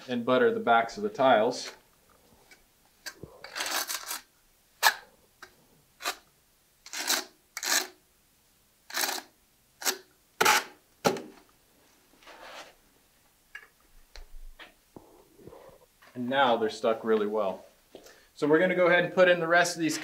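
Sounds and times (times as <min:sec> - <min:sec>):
trowel scraping mortar on tiles: 0:06.9 - 0:08.0, 0:08.9 - 0:10.7.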